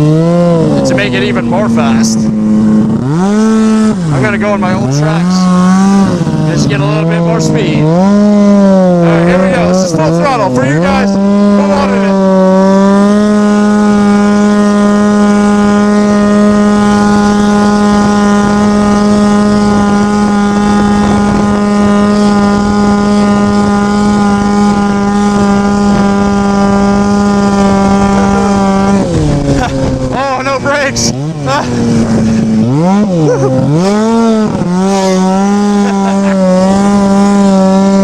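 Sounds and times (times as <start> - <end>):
snowmobile engine revving: 0.0 - 38.0.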